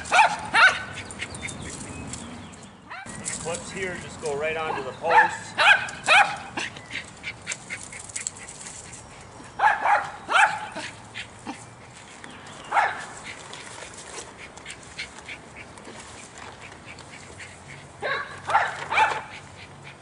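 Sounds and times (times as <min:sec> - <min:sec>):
small dog barking: 0:00.0 - 0:01.0, 0:04.6 - 0:06.7, 0:09.6 - 0:10.9, 0:12.7 - 0:13.1, 0:18.0 - 0:19.4.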